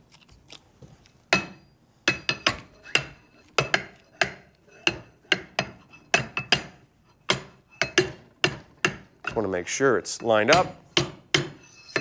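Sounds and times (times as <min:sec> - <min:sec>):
metal-on-metal clacks: 0:10.2 - 0:12.0.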